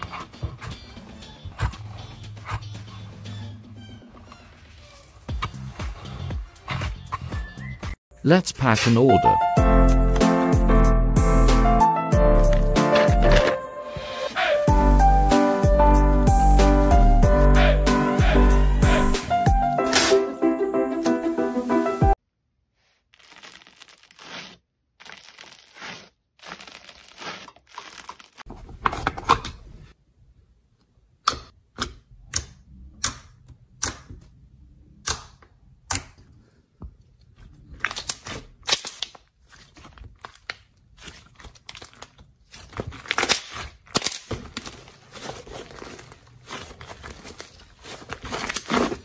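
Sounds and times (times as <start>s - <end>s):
background music: 0.0s - 22.2s.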